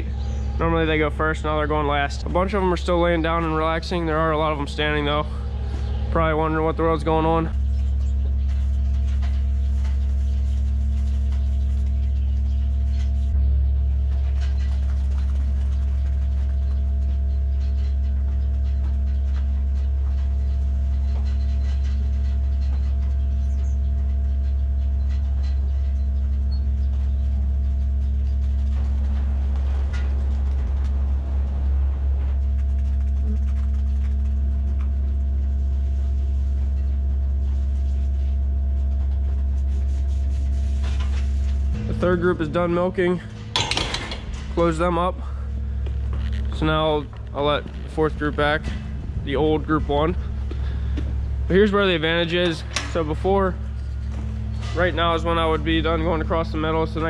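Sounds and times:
ventilation fans humming: 0.0s - 57.0s
scuffling noise: 25.1s - 41.9s.

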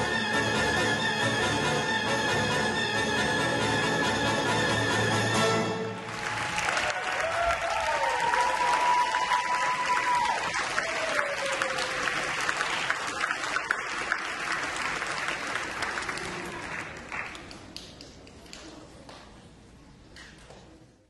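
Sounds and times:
audience applauding: 5.8s - 18.4s
person cheering: 6.4s - 12.1s.

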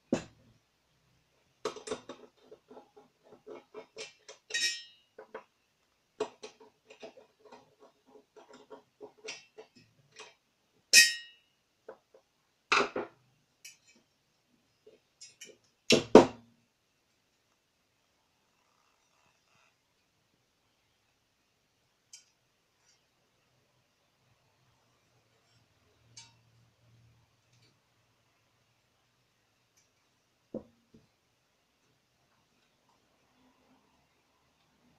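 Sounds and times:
ringing metal clink: 4.5s - 5.0s, 10.9s - 11.4s.

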